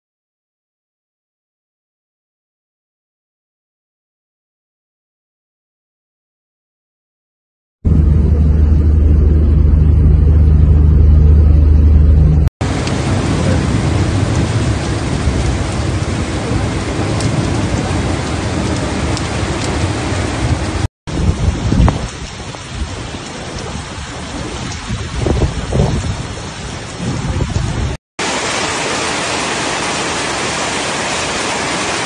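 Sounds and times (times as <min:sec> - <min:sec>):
loud low rumble: 0:07.8 - 0:22.1
gusts of wind: 0:07.9 - 0:32.0
heavy rain pouring: 0:12.6 - 0:32.0.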